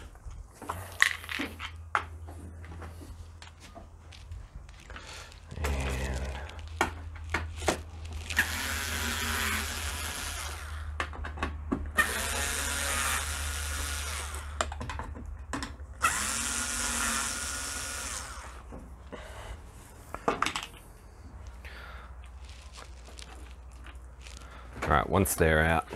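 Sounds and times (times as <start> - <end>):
cordless screwdriver motor whirring: 8.2 - 11.0, 12.0 - 14.6, 16.0 - 18.6.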